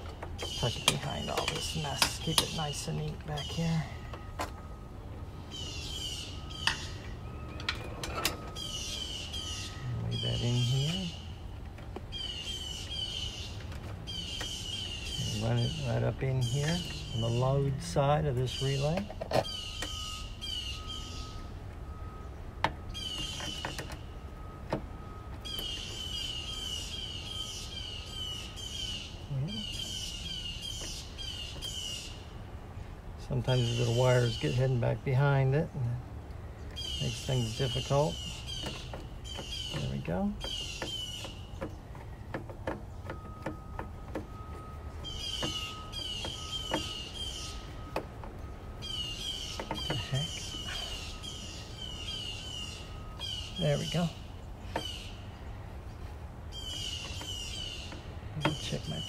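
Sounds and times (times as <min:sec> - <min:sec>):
bird chirping: 0:00.0 - 0:59.0.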